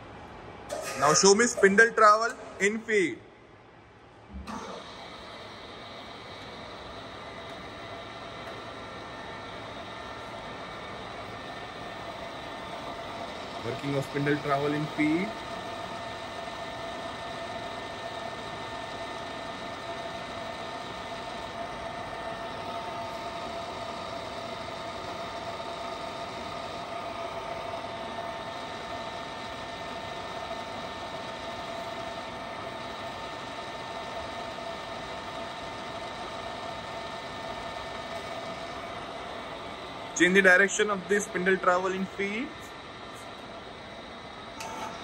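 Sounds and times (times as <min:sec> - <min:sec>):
drill motor humming and whining: 0:04.9 - 0:45.0.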